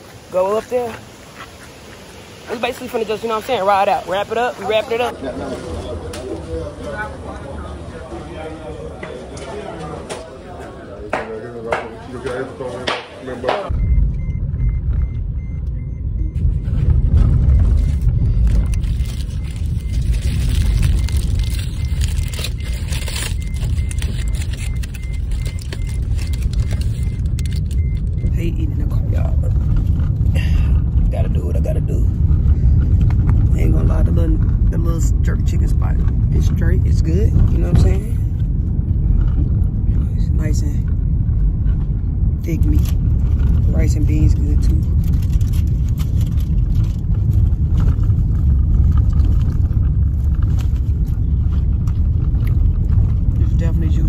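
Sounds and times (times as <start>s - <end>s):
low road rumble in a car: 13.7s - 54.0s
aluminium foil crinkling: 17.0s - 28.2s, 42.6s - 53.9s.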